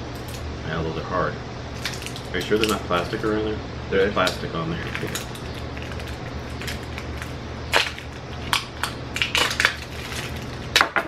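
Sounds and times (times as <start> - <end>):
plastic wrapping crackling: 4.8 - 10.8.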